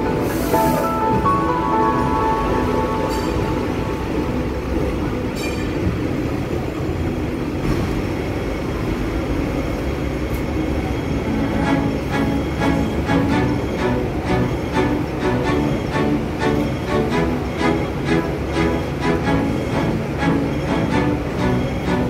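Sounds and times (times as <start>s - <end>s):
tram wheels rumbling on rails: 0.0s - 22.0s.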